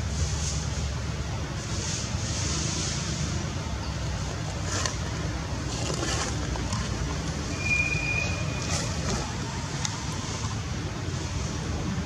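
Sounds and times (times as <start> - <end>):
low outdoor rumble: 0.0 - 12.0
thin high whistle-like tone: 7.5 - 8.7.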